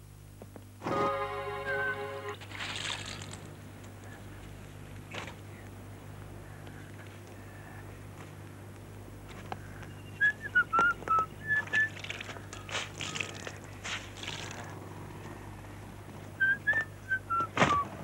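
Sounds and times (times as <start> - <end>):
wet laundry swishing: 2.4 - 3.4, 11.6 - 14.8
man whistling a tune: 10.2 - 12.0, 16.4 - 18.0.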